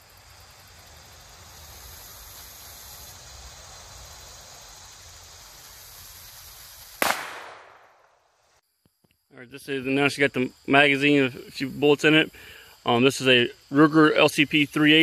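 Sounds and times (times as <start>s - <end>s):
outdoor hiss: 0.0s - 8.6s, 9.5s - 15.0s
pistol shot: 7.0s - 8.2s.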